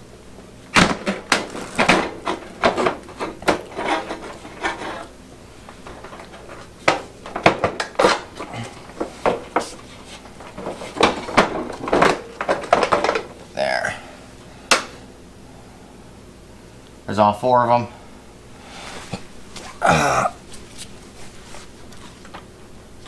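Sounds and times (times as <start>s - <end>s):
plastic scraping rubs: 1.0s - 13.2s.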